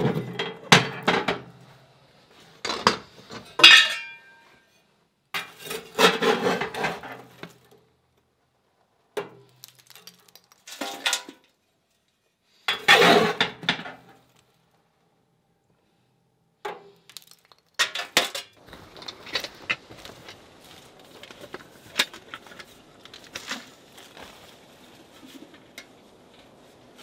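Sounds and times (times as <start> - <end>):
ringing metal clang: 3.6 - 4.5
shovel scraping in wood stove: 5.4 - 7.7, 12.0 - 13.8.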